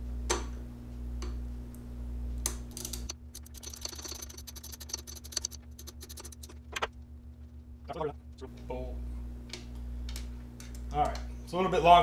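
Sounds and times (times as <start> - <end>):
socket ratchet clicking: 2.8 - 6.9.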